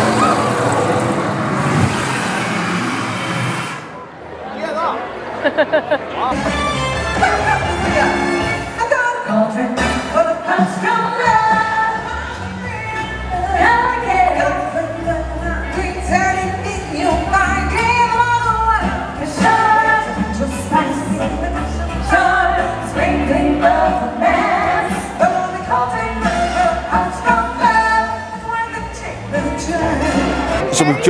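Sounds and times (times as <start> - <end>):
band backing track: 6.3 - 31.0
woman singing into a microphone: 8.8 - 30.5.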